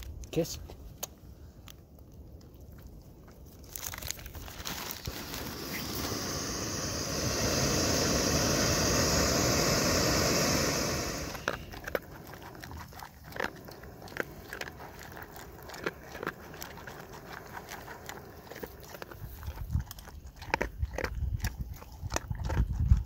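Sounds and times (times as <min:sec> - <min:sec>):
dog crunching kibble: 0:00.0 - 0:06.4, 0:11.3 - 0:23.0
gas stove hissing: 0:05.1 - 0:11.7.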